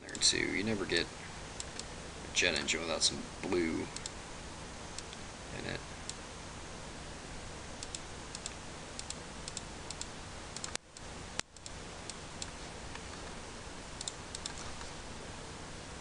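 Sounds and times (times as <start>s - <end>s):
background hiss: 0.0s - 16.0s
computer mouse clicking: 7.8s - 13.4s, 14.0s - 14.9s.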